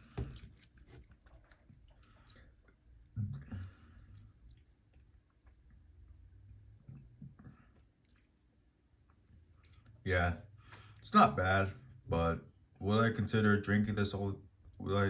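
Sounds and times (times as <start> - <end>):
lip smacks and swallowing: 0.0 - 10.0.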